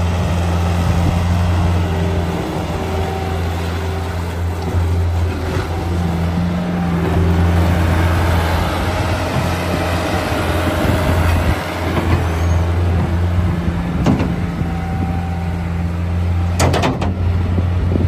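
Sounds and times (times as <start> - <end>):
loader engine running: 0.0 - 18.0
sharp knocks: 14.0 - 14.4, 16.6 - 17.2.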